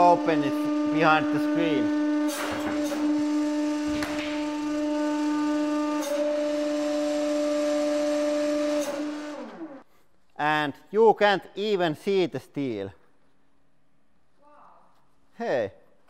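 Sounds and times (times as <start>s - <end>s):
hydraulic pump humming: 0.0s - 9.9s.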